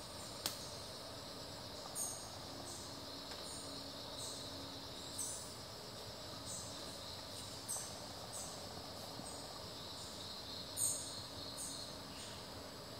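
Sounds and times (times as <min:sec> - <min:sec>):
high drone of insects: 0:00.0 - 0:12.9.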